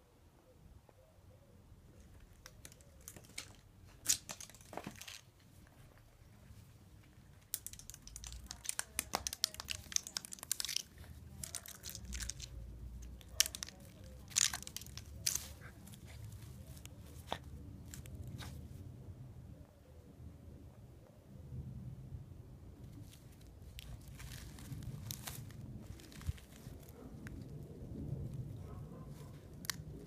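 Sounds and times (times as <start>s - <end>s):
pine cone knocking and crackling: 2.0s - 6.1s, 7.0s - 18.6s, 23.1s - 27.6s, 28.3s - 30.0s
dog claws scraping stone tiles: 7.4s - 18.6s.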